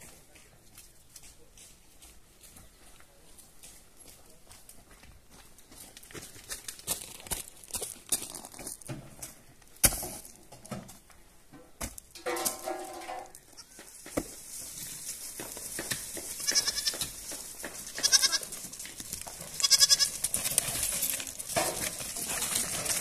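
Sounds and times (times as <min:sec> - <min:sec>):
goats bleating: 0:16.4 - 0:17.0, 0:17.9 - 0:18.6, 0:19.5 - 0:20.3.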